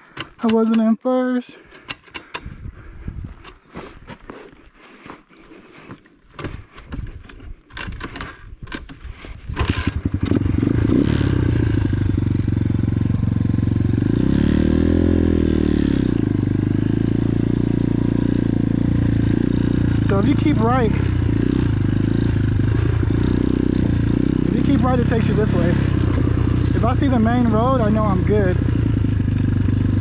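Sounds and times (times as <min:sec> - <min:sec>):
dirt bike engine running: 0:06.4 - 0:30.0
dirt bike engine revving: 0:09.6 - 0:30.0.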